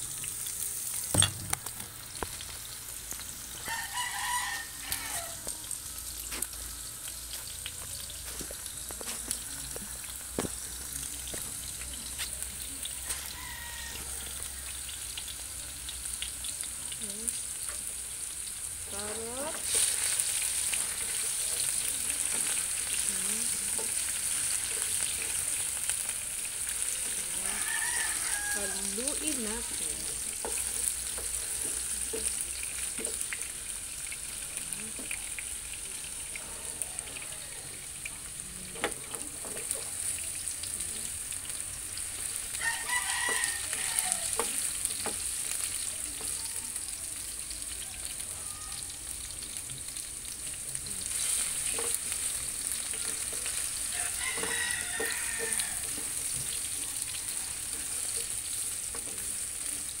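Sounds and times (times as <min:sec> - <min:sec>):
vegetables sizzling in oil: 0:00.0 - 1:00.0
rooster crowing: 0:03.6 - 0:05.6, 0:13.0 - 0:14.8, 0:26.9 - 0:29.8, 0:36.3 - 0:38.1, 0:42.3 - 0:44.7, 0:47.7 - 0:49.1, 0:51.8 - 0:58.3
spatula scraping a pan: 0:19.5 - 0:28.6, 0:29.6 - 0:33.5, 0:51.0 - 0:59.4.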